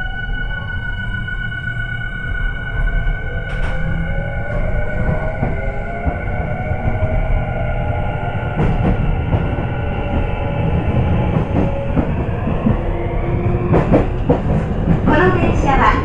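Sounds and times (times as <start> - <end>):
train rumble: 0.0 - 16.0
rail joints clicking under wheels: 3.3 - 7.3, 8.5 - 16.0.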